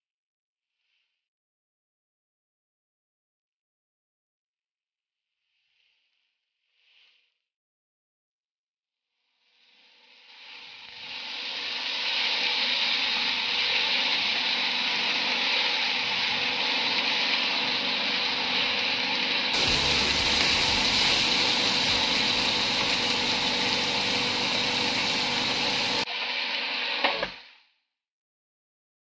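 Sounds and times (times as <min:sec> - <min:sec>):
food sizzling in a frying pan: 0:09.4 - 0:27.5
spatula stirring: 0:19.6 - 0:26.0.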